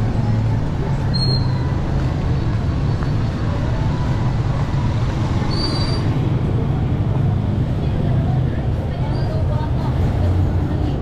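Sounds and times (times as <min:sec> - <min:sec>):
traffic rumble: 0:00.0 - 0:11.0
short high squeaks: 0:05.5 - 0:06.1.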